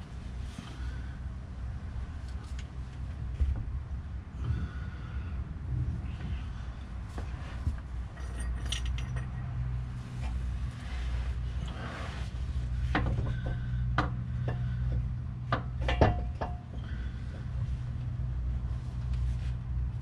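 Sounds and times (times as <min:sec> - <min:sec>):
steady low hum: 0:00.0 - 0:20.0
metal tools clinking: 0:08.1 - 0:09.5.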